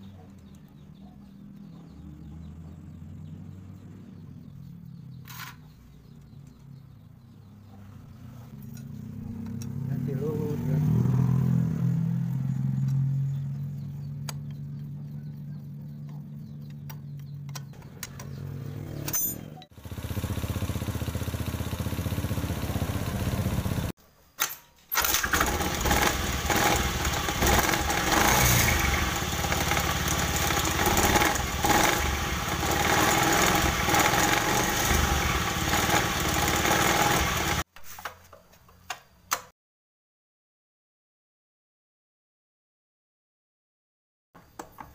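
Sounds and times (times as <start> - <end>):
scooter engine revving: 8.2 - 24.0, 25.0 - 37.7.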